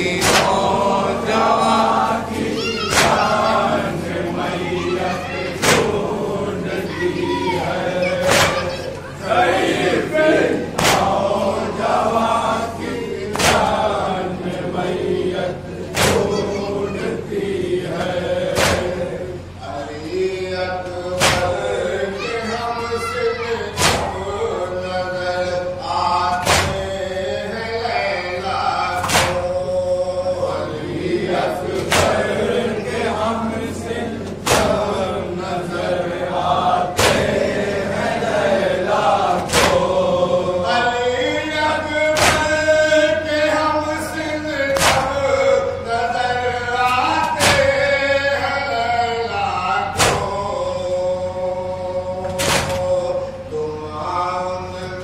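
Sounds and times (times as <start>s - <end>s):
men chanting in unison: 0.0s - 55.0s.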